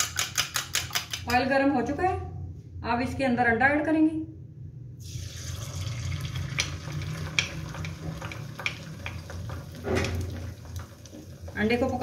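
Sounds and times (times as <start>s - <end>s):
egg sizzling in hot oil: 5.0s - 12.0s.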